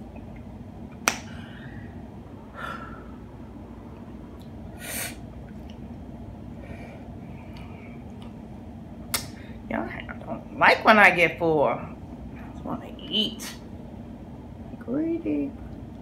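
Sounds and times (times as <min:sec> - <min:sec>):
low steady hum: 0:00.0 - 0:16.0
person breathing: 0:01.3 - 0:03.3, 0:06.5 - 0:08.0
hissing sniff: 0:04.7 - 0:05.2.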